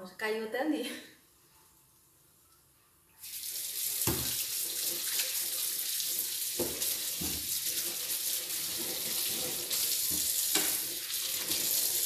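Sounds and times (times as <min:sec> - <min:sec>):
water running into metal sink: 0:03.2 - 0:12.0
kitchen tap turned on: 0:04.0 - 0:05.4, 0:06.5 - 0:12.0.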